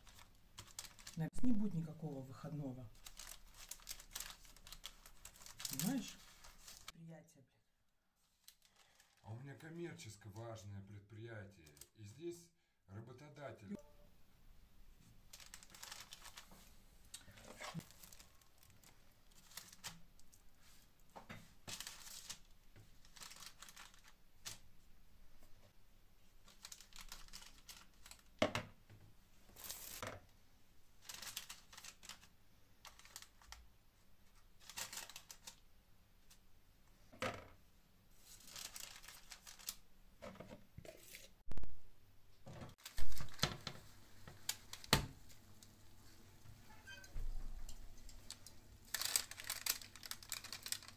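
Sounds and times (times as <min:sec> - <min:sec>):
parchment paper rustling: 0:00.0 - 0:07.0, 0:08.2 - 0:09.3, 0:15.0 - 0:24.8, 0:26.2 - 0:28.4, 0:29.5 - 0:30.1, 0:31.0 - 0:35.6, 0:38.1 - 0:39.9, 0:42.7 - 0:46.3, 0:47.2 - 0:50.9.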